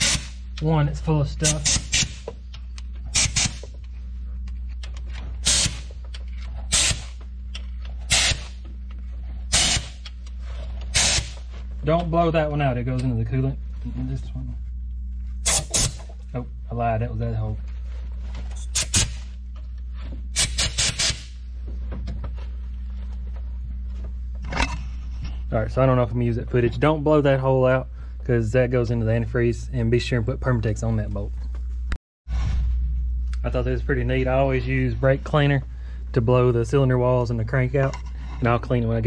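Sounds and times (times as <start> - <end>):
compressed air blasts: 0.0 - 0.4, 1.4 - 2.3, 3.1 - 3.7, 5.4 - 5.9, 6.7 - 7.2, 8.1 - 8.6, 9.5 - 10.0, 10.9 - 11.5, 15.4 - 16.1, 18.7 - 19.3, 20.3 - 21.4
steady low hum: 0.0 - 39.0.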